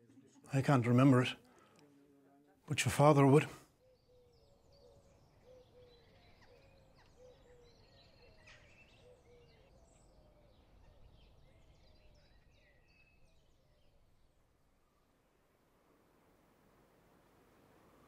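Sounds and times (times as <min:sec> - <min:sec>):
birds calling: 0:03.0 - 0:14.0.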